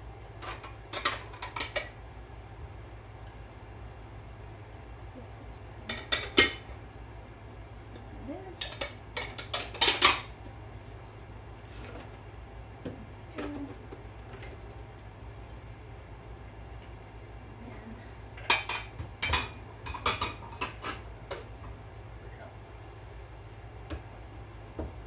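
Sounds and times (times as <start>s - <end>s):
dishes and cutlery clinking: 5.9s - 6.7s, 8.6s - 10.4s, 18.4s - 21.1s.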